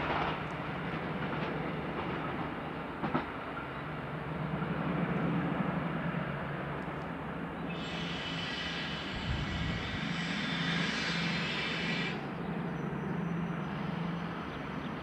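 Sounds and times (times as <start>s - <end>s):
train wheels squealing on curve: 7.6s - 15.0s.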